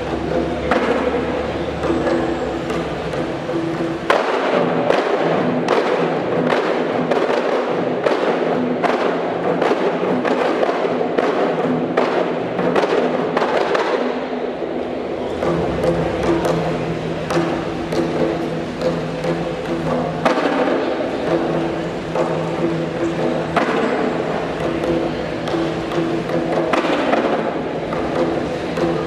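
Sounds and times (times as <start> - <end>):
frame drums struck by hand: 0.0 - 29.0.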